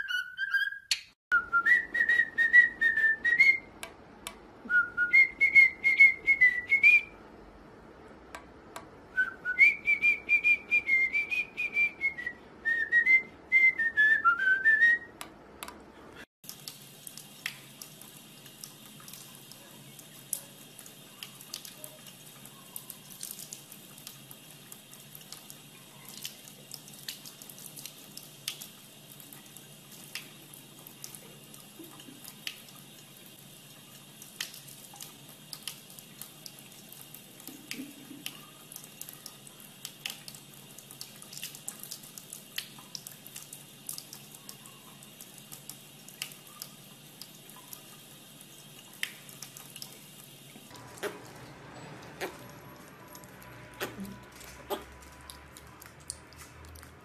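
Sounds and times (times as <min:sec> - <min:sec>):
tap water running into sink: 0:16.4 - 0:57.0.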